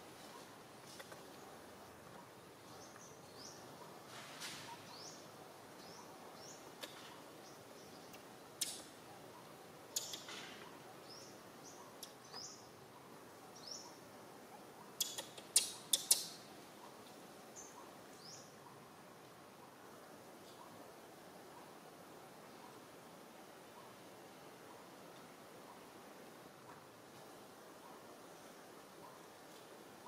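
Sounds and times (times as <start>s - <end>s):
sharp loud clicks: 8.6s - 8.9s
small animal chirping: 8.6s - 10.8s, 14.8s - 17.0s.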